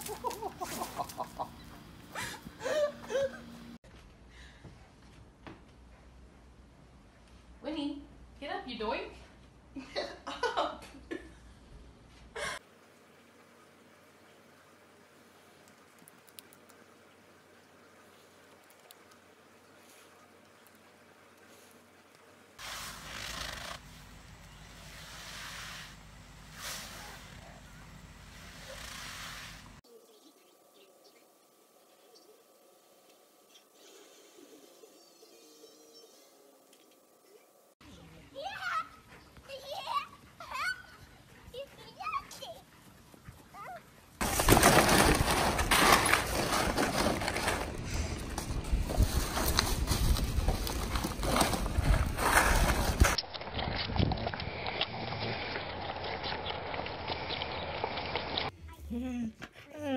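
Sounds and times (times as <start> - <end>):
elephant hide scraping on bark: 22.6 - 24.1, 24.8 - 27.5, 28.2 - 29.8, 44.2 - 53.2
ice cubes clattering in plastic pool: 44.2 - 56.2.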